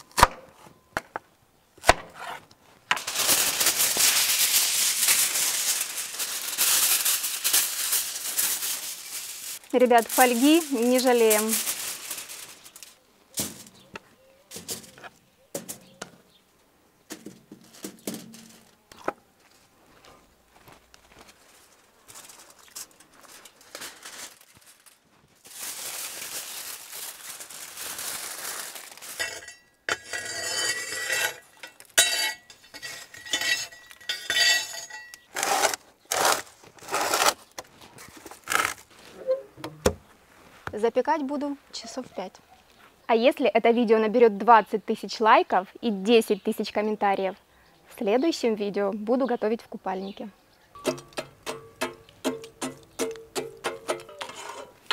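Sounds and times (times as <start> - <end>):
aluminium foil crinkling: 2.9 - 13.9, 17.5 - 18.8, 20.9 - 39.2
metal tools clinking and clanking: 29.2 - 35.3, 50.8 - 54.8.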